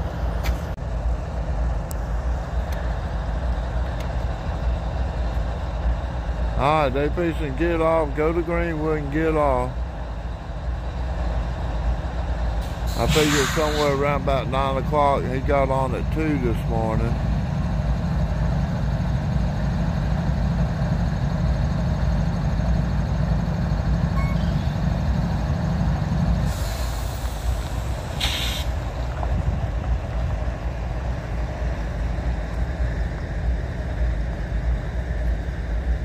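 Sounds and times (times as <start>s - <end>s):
steady low rumble: 0.0s - 36.0s
short sharp air blast: 12.6s - 14.0s, 26.5s - 28.8s
air brakes hissing: 12.6s - 14.2s, 26.4s - 28.8s.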